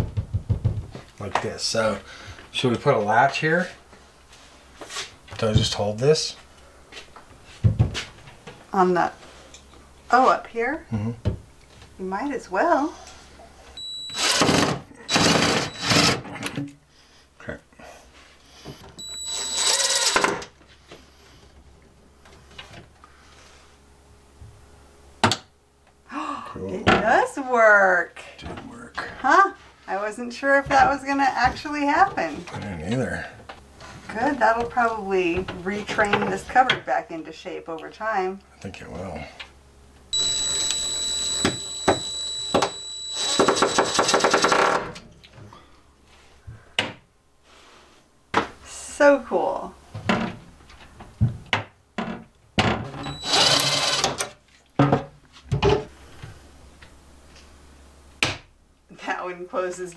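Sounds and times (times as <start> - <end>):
cordless drill driving screw: 13.8 - 16.2, 19.0 - 20.4, 40.2 - 44.2, 53.0 - 54.1
impact driver rattling hammering: 42.6 - 44.9.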